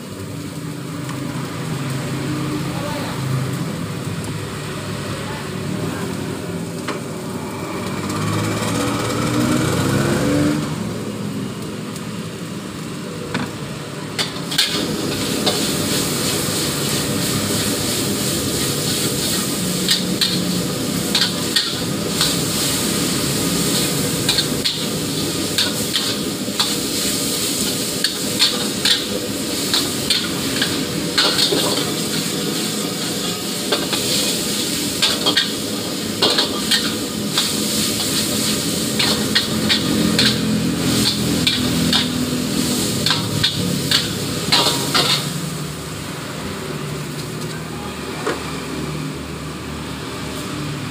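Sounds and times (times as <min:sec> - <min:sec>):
noodles sizzling in a wok: 0:00.0 - 0:50.9
metal spatula scraping a wok: 0:14.2 - 0:45.6.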